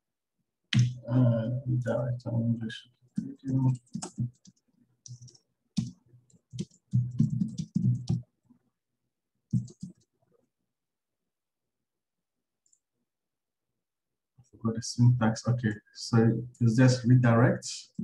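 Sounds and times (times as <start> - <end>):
computer keyboard typing: 3.2 - 8.4, 9.5 - 10.2.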